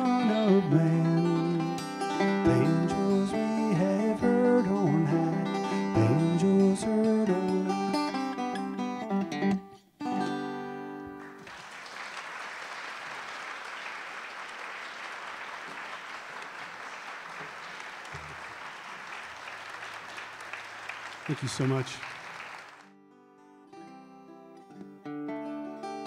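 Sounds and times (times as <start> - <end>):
banjo playing: 0.0 - 11.2
audience applauding: 11.2 - 22.9.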